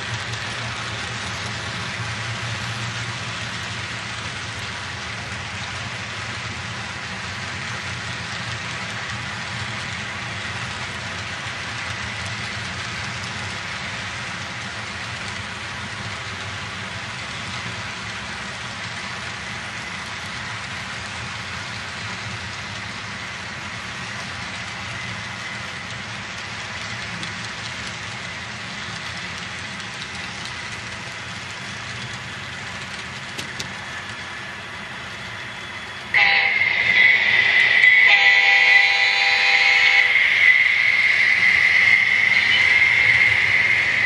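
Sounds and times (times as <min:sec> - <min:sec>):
model train cars rolling: 0:00.0 - 0:44.0
diesel locomotive horn: 0:36.1 - 0:37.0, 0:38.0 - 0:40.3.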